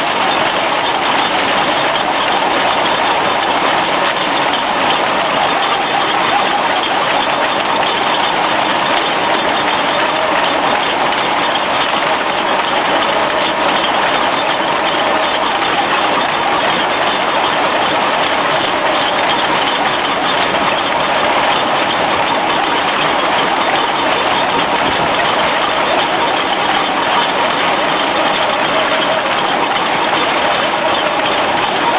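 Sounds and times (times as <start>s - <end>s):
percussion drill boring into brick: 0.0s - 31.9s.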